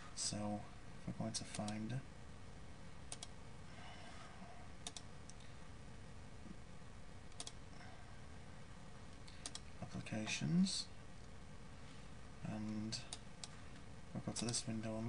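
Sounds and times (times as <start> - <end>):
computer mouse clicks: 3.1 - 3.4, 4.8 - 5.4, 7.3 - 7.6, 9.1 - 9.7.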